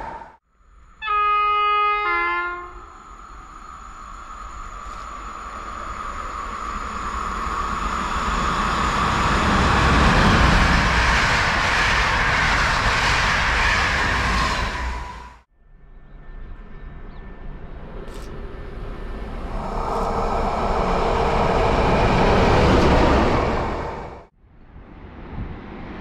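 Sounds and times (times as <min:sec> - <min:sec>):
high whine: 0:02.5 - 0:25.9
train wheels rushing on rail: 0:02.8 - 0:15.5, 0:17.8 - 0:24.3.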